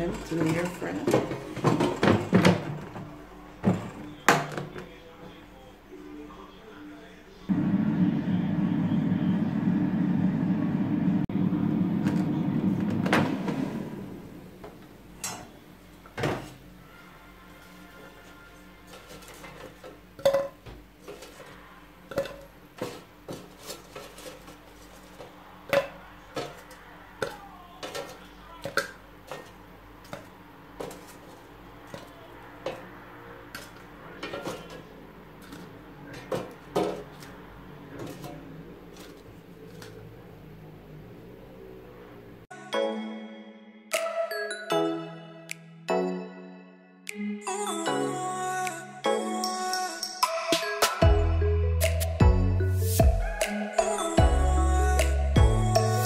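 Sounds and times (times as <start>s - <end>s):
air fryer fan humming: 7.5s - 16.8s.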